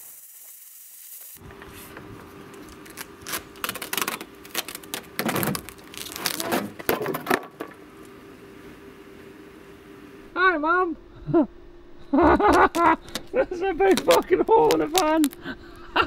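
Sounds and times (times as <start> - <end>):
plasma cutter hissing: 0.0 - 1.4.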